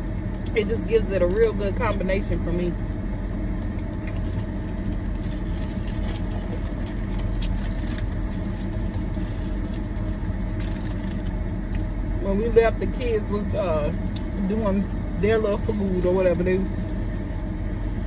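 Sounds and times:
potato chips being chewed: 3.4s - 11.9s.

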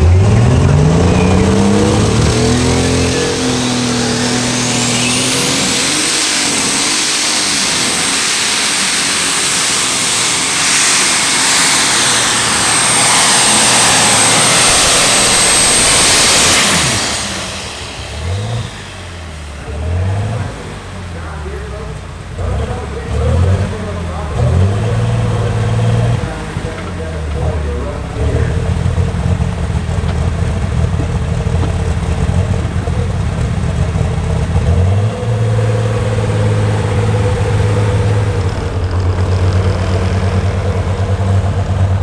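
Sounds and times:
tractor engine revving: 0.0s - 42.0s
high steady whistle: 0.9s - 2.0s, 2.7s - 6.4s.

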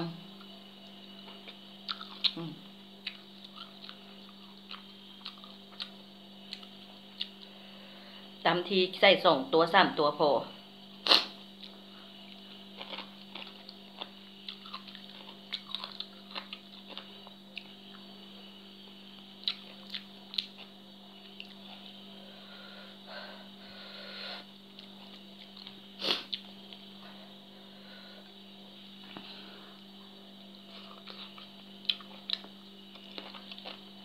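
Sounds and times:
steady low hum: 0.0s - 34.0s
person chewing and smacking: 1.2s - 2.4s, 3.0s - 7.5s, 11.6s - 18.1s, 19.2s - 21.9s, 30.7s - 33.9s.

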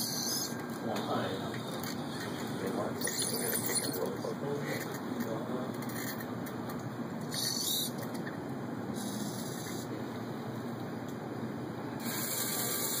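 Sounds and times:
robotic arm whirring: 0.0s - 0.6s, 1.8s - 4.0s, 7.2s - 8.2s
steady hiss: 11.9s - 13.0s.

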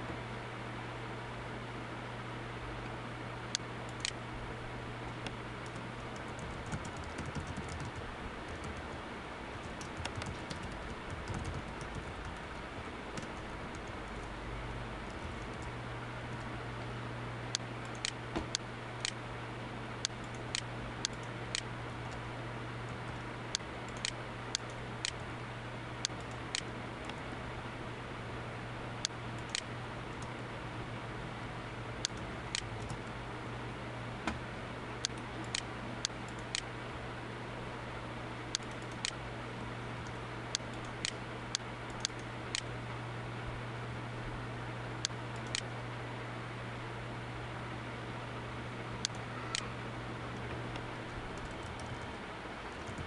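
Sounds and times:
low hum and hiss: 0.0s - 53.0s
keyboard keystrokes: 5.6s - 9.0s, 9.6s - 12.5s
mouse clicks: 17.5s - 19.2s, 38.5s - 39.2s.

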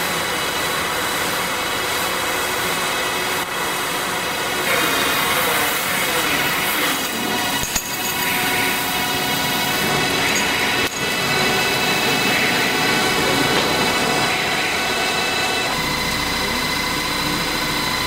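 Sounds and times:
baler machine hum and clatter: 0.0s - 18.0s
machine whining tones: 5.7s - 18.0s.

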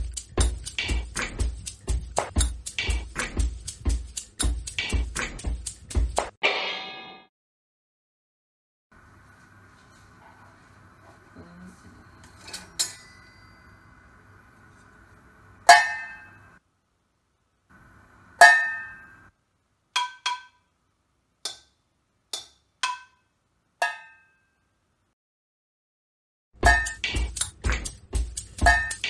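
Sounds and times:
spatula striking metal pots: 0.0s - 7.2s, 15.7s - 16.4s, 18.4s - 19.2s, 20.0s - 20.7s, 22.3s - 24.4s, 26.6s - 29.0s.

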